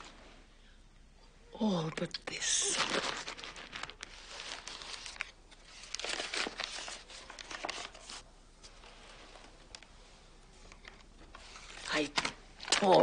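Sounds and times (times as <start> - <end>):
paper crinkling: 2.3 - 10.0, 10.6 - 13.0.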